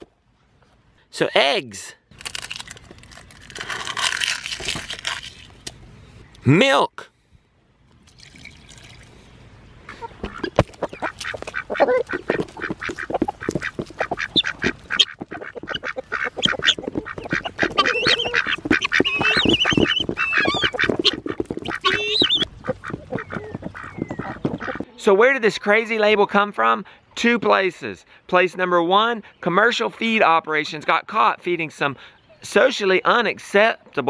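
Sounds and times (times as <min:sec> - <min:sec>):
hens calling: 0:09.9 - 0:25.8
beaks tapping rubber pan: 0:10.2 - 0:24.8.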